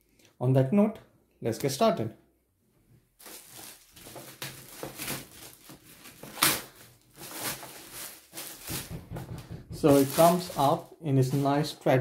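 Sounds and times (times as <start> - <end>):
plastic wrapping crinkling: 3.2 - 11.8.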